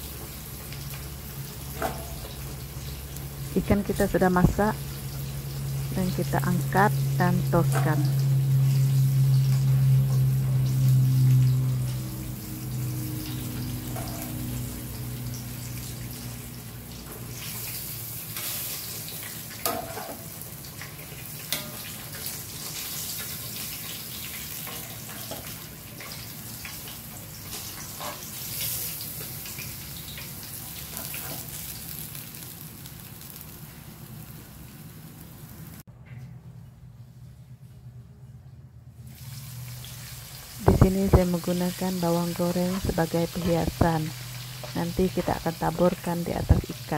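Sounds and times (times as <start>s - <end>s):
oil sizzling as fish fries: 0.0s - 35.9s, 39.0s - 46.9s
low hum: 0.9s - 17.8s.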